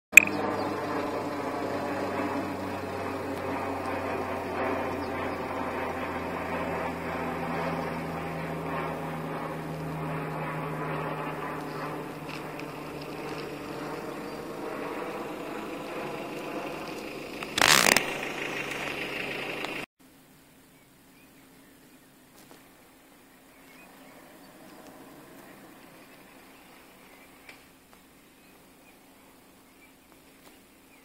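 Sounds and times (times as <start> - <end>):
vehicle engine running: 0.2 - 19.9
rattling on rough track: 15.3 - 19.9.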